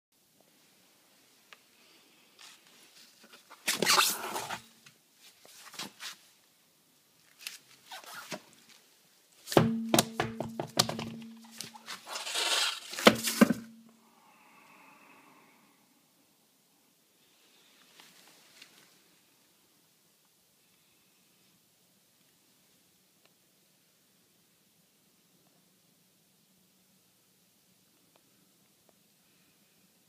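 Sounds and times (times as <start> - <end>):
scraping and rustling: 11.3 - 13.7.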